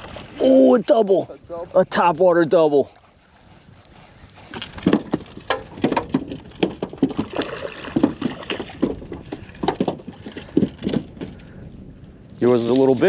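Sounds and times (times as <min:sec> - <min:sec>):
water slapping against a boat: 0:00.0 - 0:11.6
fish thrashing at the surface: 0:04.4 - 0:11.3.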